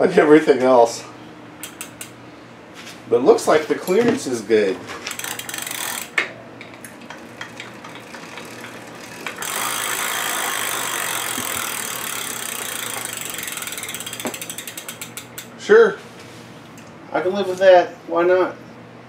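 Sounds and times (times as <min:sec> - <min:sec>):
freewheel pawls ratcheting: 0:05.1 - 0:15.6.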